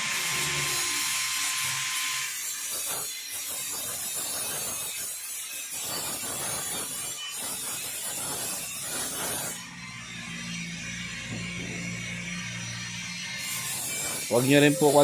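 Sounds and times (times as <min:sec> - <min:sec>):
metal sheet scraping on workbench: 0:05.8 - 0:09.6, 0:11.3 - 0:15.0.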